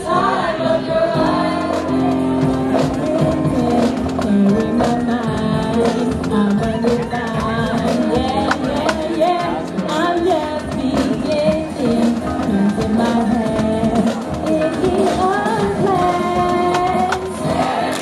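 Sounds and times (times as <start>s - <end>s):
choir singing: 0.0s - 4.0s, 10.9s - 18.0s
bass drum and snare drums: 1.1s - 18.0s
instruments playing: 1.2s - 18.0s.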